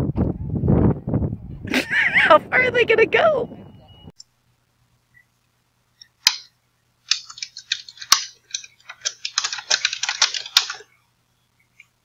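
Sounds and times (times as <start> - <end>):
computer keyboard typing: 7.1 - 10.8.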